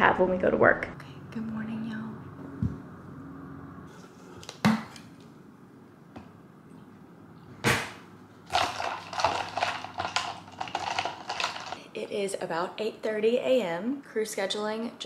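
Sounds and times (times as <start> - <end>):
straw rattling in plastic tumbler: 8.5 - 11.8.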